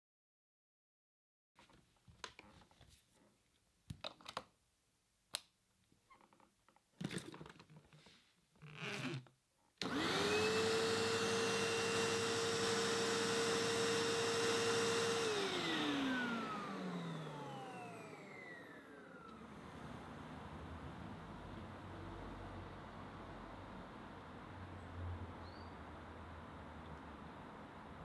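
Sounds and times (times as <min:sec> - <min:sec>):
vacuum cleaner motor whining: 0:09.8 - 0:20.9.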